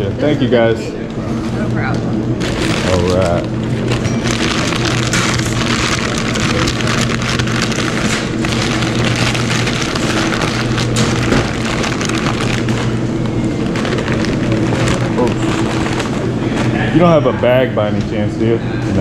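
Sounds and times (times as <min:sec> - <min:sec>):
kitchen equipment hum: 0:00.0 - 0:19.0
paper crinkling and rustling: 0:02.4 - 0:16.8.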